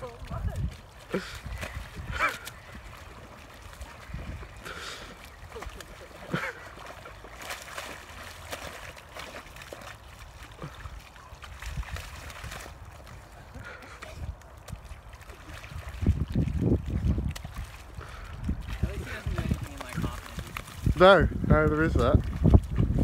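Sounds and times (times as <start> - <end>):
dog splashing in muddy puddle: 0.0 - 23.0.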